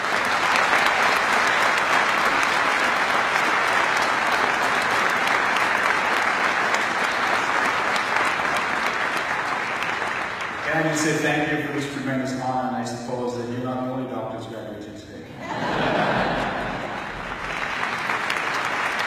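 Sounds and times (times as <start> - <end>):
audience applauding: 0.0 - 12.0, 15.6 - 19.0.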